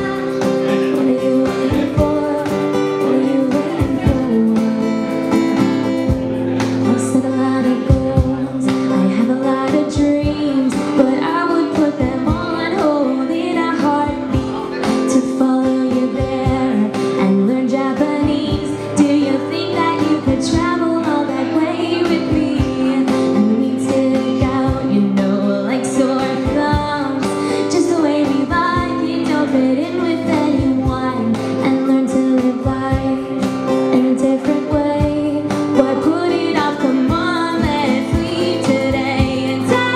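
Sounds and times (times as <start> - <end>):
acoustic guitar: 0.0 - 39.9
cajon beating rhythm: 0.0 - 39.9
woman singing: 0.0 - 39.9.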